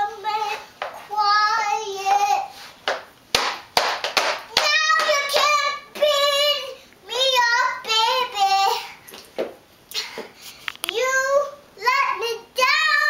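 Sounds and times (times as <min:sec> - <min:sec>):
girl singing a cappella: 0:00.0 - 0:02.7, 0:04.5 - 0:09.0, 0:10.8 - 0:13.0.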